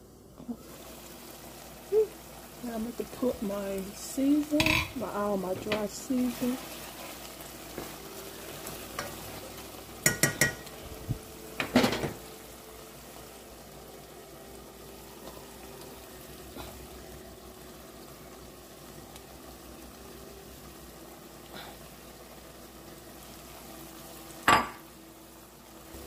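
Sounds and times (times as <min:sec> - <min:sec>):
onions sizzling in a pot: 0:00.0 - 0:26.0
metal clinks against pot: 0:10.1 - 0:10.6.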